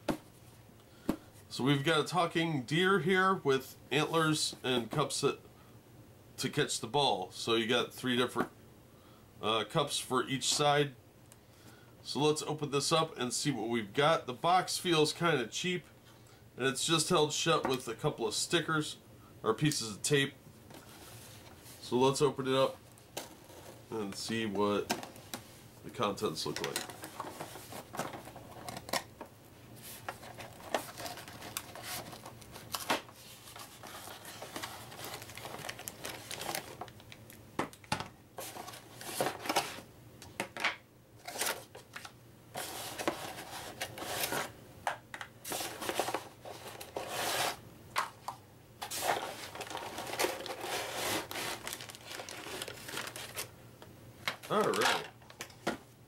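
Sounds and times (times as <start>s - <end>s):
plastic bags crinkling: 30.1s - 39.8s, 48.8s - 53.5s, 54.2s - 55.6s
cardboard box being opened: 48.9s - 53.4s.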